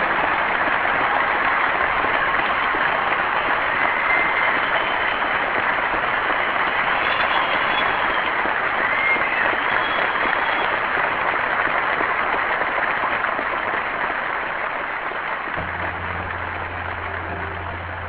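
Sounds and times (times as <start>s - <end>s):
audience applause: 0.0s - 18.0s
music with held low note: 15.6s - 18.0s.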